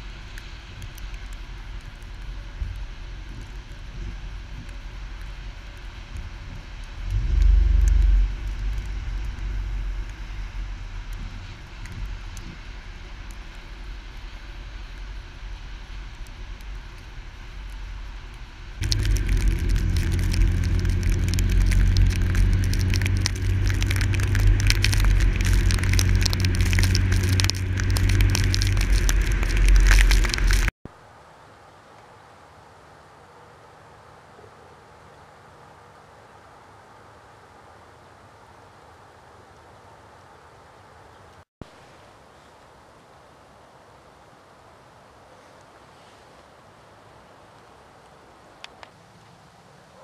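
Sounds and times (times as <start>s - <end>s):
small sharp crackles: 0.0s - 30.7s
car engine rumble: 0.0s - 30.8s
tyre and wind noise: 0.0s - 30.8s.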